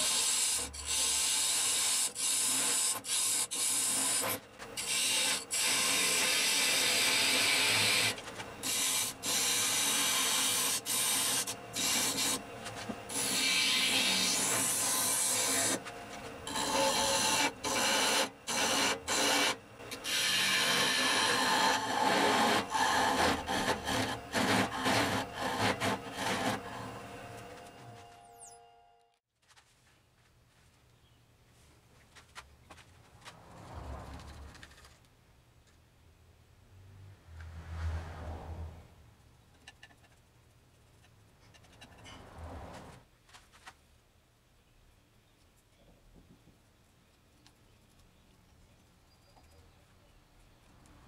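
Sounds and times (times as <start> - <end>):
chisel scraping wood on lathe: 0.0 - 27.7.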